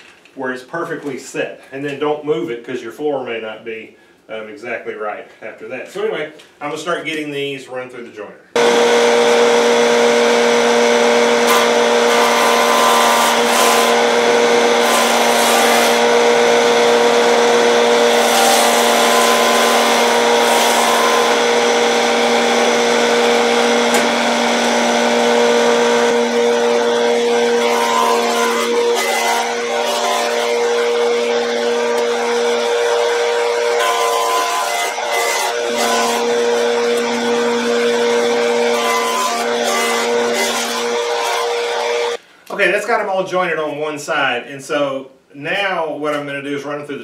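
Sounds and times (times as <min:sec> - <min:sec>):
cutterhead planing wood: 0:08.6 - 0:42.2
jointer motor hum: 0:08.6 - 0:42.2.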